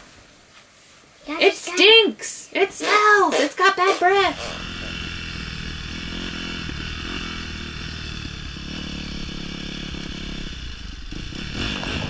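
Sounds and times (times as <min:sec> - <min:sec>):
dirt bike engine running: 0:03.3 - 0:12.0.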